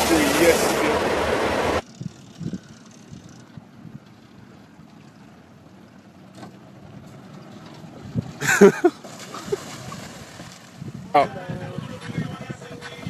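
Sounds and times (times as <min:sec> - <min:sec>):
loud splash into water: 0:08.6 - 0:10.6.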